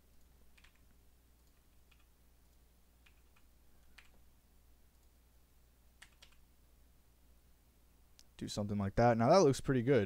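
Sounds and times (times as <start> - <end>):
faint low hum: 0.0 - 10.0
computer mouse clicks: 0.1 - 4.2, 4.9 - 5.2, 6.0 - 6.4.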